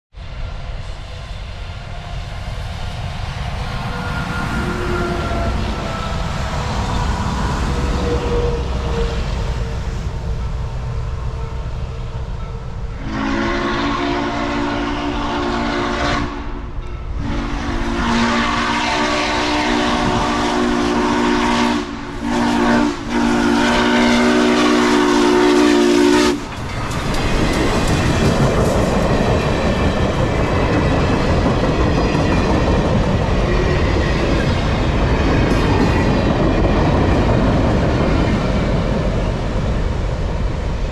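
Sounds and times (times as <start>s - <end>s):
steam locomotive whistle: 3.8s - 10.0s, 13.0s - 26.5s
train wheels clacking on rails: 16.8s - 40.9s.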